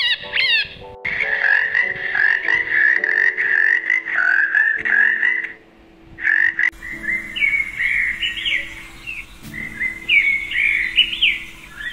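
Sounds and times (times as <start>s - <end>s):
frog calling: 0.0s - 5.6s, 6.2s - 11.9s
bird chirping: 6.7s - 11.9s.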